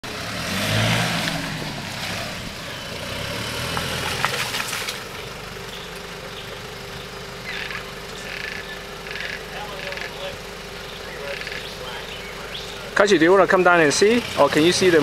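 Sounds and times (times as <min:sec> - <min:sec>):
off-road vehicle engine pulling: 0:00.0 - 0:15.0
tyres knocking over rocks: 0:03.7 - 0:05.2.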